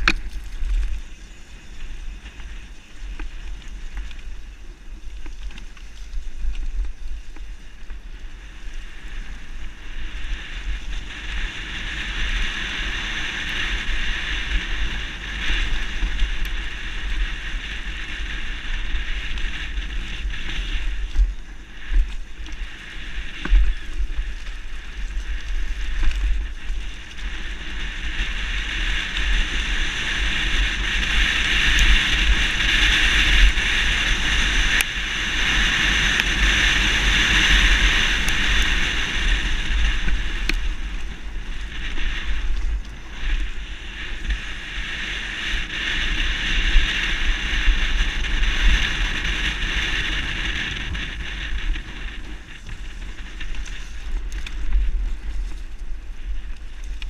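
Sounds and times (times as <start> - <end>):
sharp knocks from bike: 0.0 - 1.0
wind buffeting microphone: 0.0 - 57.0.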